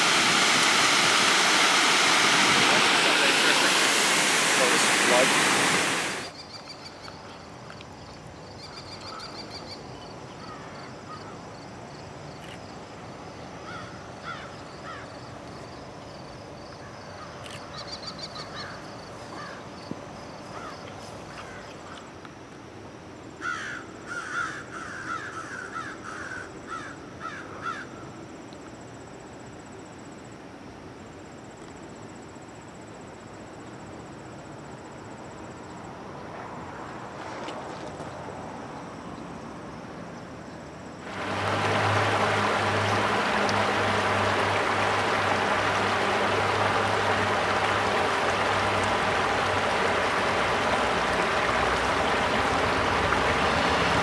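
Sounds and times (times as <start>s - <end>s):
crows cawing: 13.6s - 15.0s, 23.4s - 27.9s.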